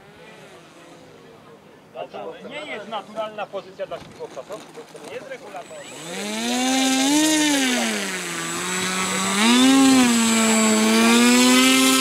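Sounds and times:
model airplane motor and propeller: 4.0s - 12.0s.

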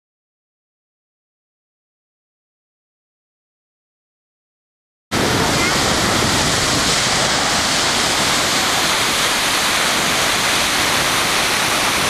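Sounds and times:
ocean waves breaking: 5.2s - 12.0s.

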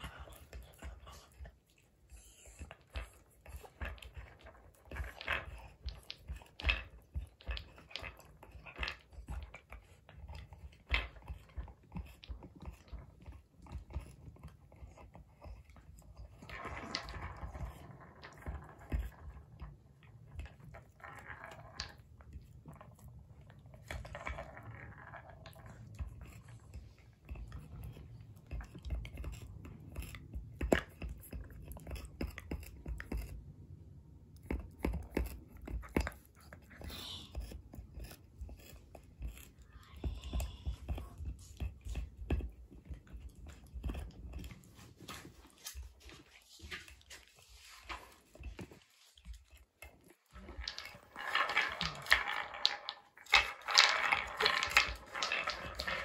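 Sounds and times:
dog teeth knocking on wood: 34.3s - 45.3s
wooden toy thumping: 50.4s - 56.0s.

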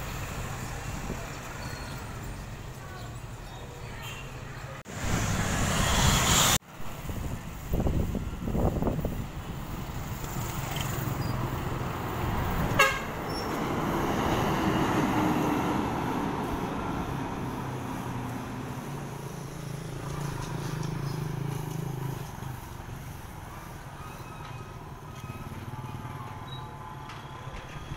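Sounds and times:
road traffic passing: 0.0s - 27.9s
bus driving past: 4.8s - 27.9s
vehicle horn toot: 12.7s - 13.2s.

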